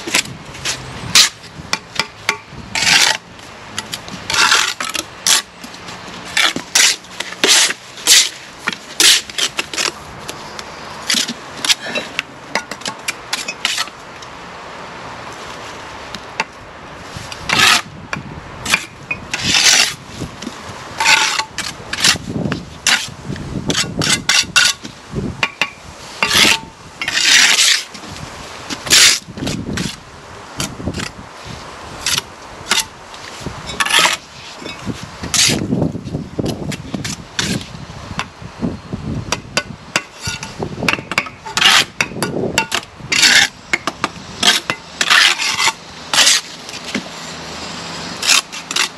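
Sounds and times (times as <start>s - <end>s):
trowels scraping through mortar: 2.8s - 3.2s, 3.8s - 10.0s, 18.7s - 20.0s, 21.0s - 24.9s, 26.2s - 28.0s, 28.8s - 30.0s, 32.0s - 35.7s, 36.6s - 37.8s, 40.0s - 40.6s, 41.2s - 47.4s, 48.2s - 48.9s
bricks tapped into mortar: 40.9s - 41.4s.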